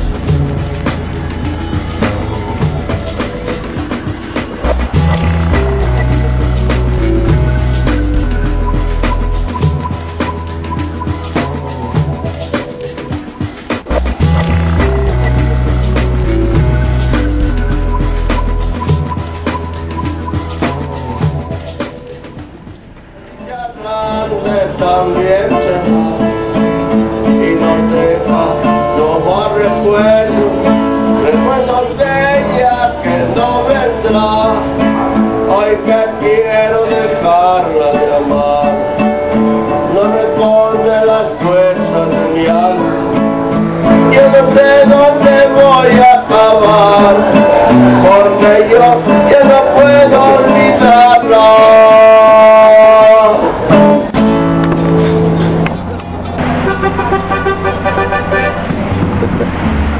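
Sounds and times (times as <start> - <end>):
person singing: 0.0 - 13.2, 14.2 - 21.8, 23.4 - 54.3
acoustic guitar: 0.0 - 59.9.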